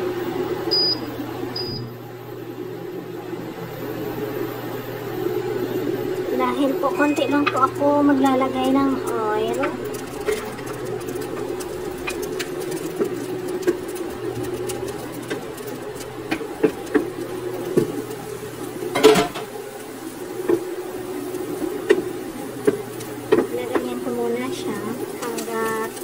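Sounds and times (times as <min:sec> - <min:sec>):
steady hum: 0:00.0 - 0:26.0
wooden spoon scraping frying pan: 0:06.8 - 0:19.6.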